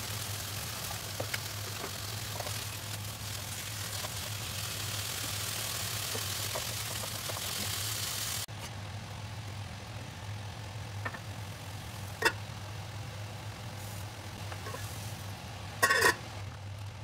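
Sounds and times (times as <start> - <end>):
steady low hum: 0.0 - 17.0
vegetables sizzling in wok: 0.0 - 17.0.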